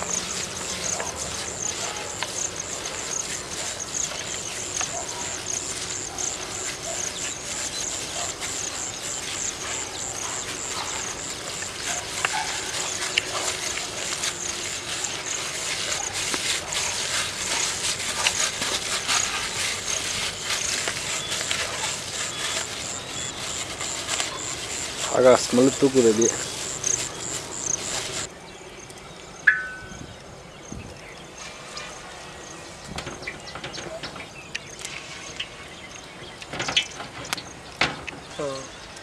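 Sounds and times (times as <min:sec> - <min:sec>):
insect chirring: 0:00.0 - 0:16.2, 0:17.5 - 0:28.3.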